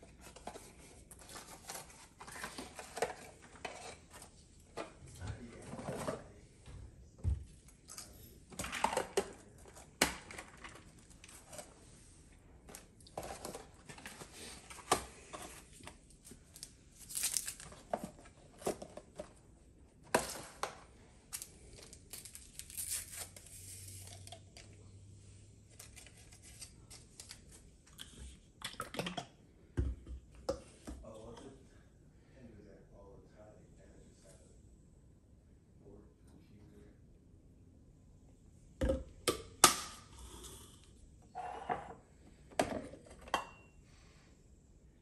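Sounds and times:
paper packets crinkling and tearing: 16.4s - 17.9s, 21.4s - 24.2s
items set down on stone countertop: 29.8s - 31.0s.

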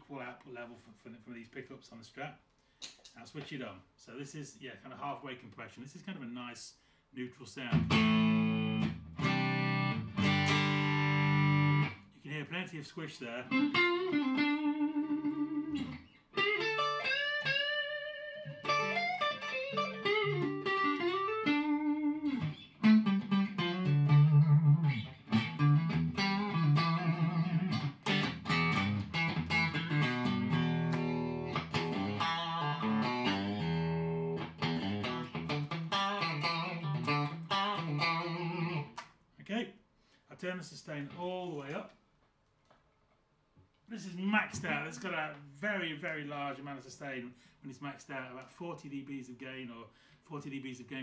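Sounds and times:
compressed electric guitar playing: 7.7s - 12.1s, 13.4s - 39.0s.

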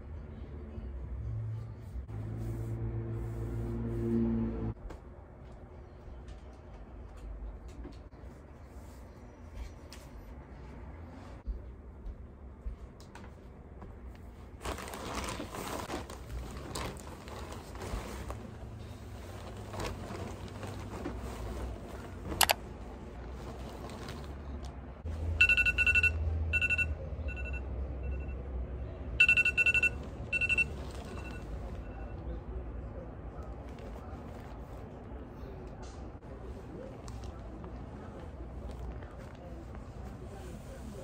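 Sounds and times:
rustling handling noise: 14.1s - 24.8s, 29.8s - 31.8s.

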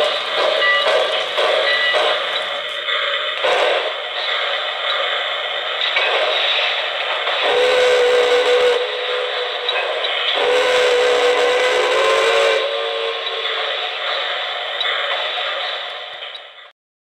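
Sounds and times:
steady hiss: 0.0s - 16.7s
deep model train whistle blasts: 3.4s - 4.0s, 7.4s - 9.8s, 10.4s - 13.4s.

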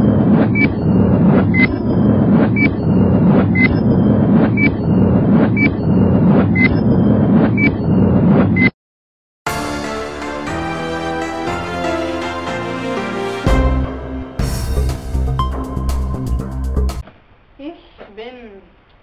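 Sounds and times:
music: 9.5s - 17.0s.

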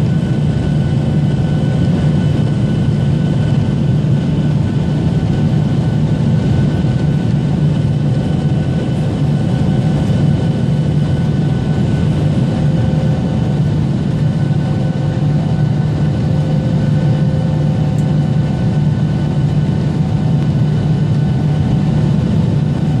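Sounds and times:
faint steady whines: 0.0s - 23.0s
jet engine and airflow noise: 0.0s - 23.0s.

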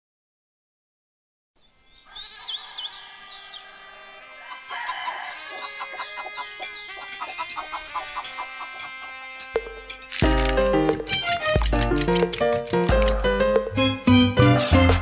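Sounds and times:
high bird chirps: 1.6s - 9.0s
rooster crowing: 2.0s - 9.5s
plucked rhythmic music: 6.7s - 15.0s.

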